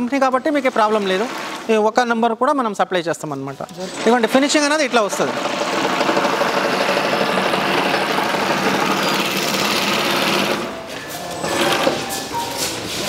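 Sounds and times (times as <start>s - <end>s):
industrial sewing machine running: 0.2s - 1.8s, 3.8s - 12.1s.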